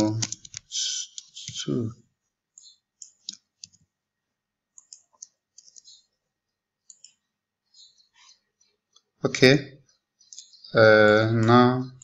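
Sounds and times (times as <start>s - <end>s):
mouse clicks: 2.5s - 3.8s, 4.7s - 6.1s, 6.8s - 7.3s.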